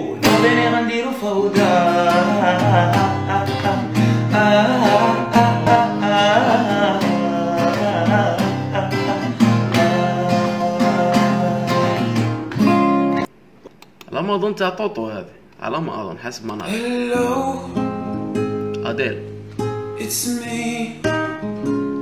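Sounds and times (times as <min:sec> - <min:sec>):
man singing pop melody: 0:00.0 - 0:12.4, 0:16.6 - 0:18.0, 0:20.0 - 0:21.4
guitar accompaniment: 0:00.0 - 0:13.3, 0:16.5 - 0:22.0.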